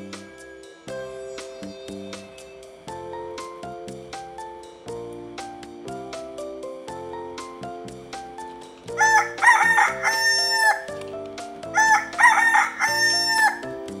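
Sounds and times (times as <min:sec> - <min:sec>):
light background music: 0:00.0 - 0:14.0
rooster crowing: 0:09.0 - 0:10.9, 0:11.7 - 0:13.7.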